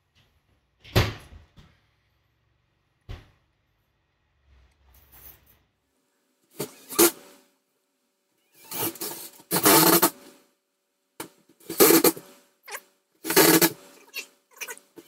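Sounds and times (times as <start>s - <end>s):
cordless drill driving screws: 8.6s - 10.1s.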